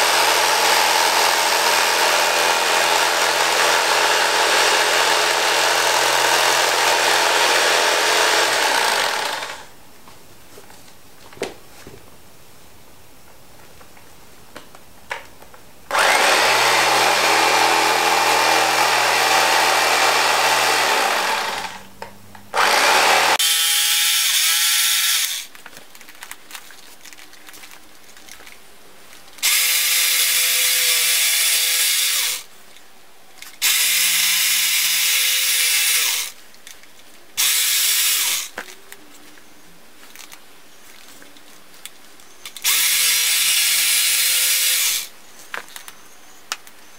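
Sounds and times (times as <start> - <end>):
electric carving knife cutting foam: 0.0 - 9.7, 15.9 - 21.9, 22.6 - 25.5, 29.4 - 32.5, 33.6 - 36.4, 42.6 - 45.1.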